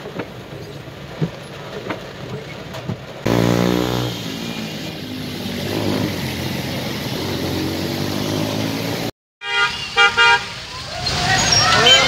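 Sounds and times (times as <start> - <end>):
rain and tyres on wet road: 0.0 - 3.3, 3.9 - 12.0
vehicle engine droning: 3.3 - 9.1.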